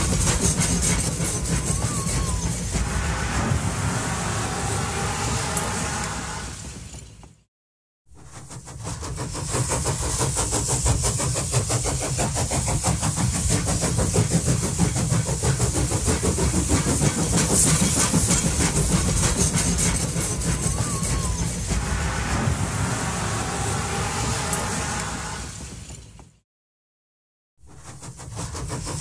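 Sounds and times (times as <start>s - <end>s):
electric tram rumbling on track: 0.0s - 7.5s, 8.1s - 26.4s, 27.7s - 29.0s.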